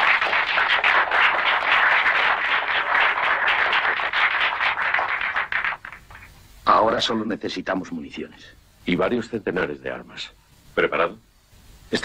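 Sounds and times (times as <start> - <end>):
small group clapping: 0.0 - 6.4.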